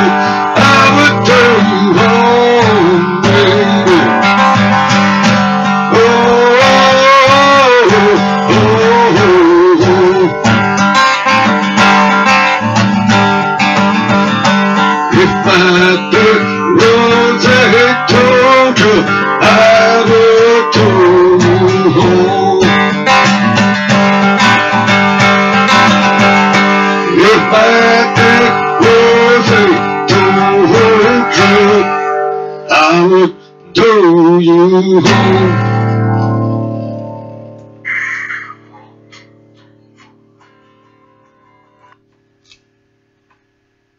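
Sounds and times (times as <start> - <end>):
man singing: 0.0 - 4.6, 5.6 - 10.6, 15.0 - 23.4, 26.8 - 32.1, 32.7 - 36.0
acoustic guitar strumming: 0.0 - 42.9.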